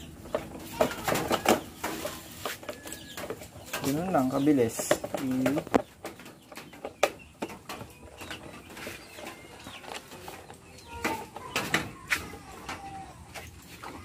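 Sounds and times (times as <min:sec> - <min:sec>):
birds calling: 0:00.0 - 0:14.0
plastic cowling clicks and knocks: 0:00.2 - 0:12.0.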